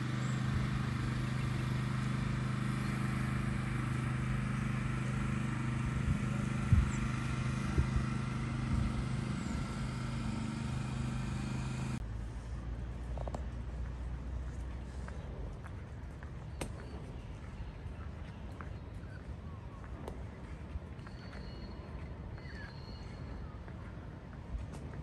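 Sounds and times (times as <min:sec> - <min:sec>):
motor running steadily: 0:00.0 - 0:17.8.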